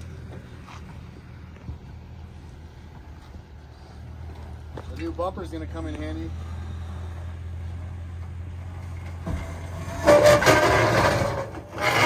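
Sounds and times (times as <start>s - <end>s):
truck engine running low: 0.0s - 12.0s
rough scraping grind on rock: 9.3s - 12.0s.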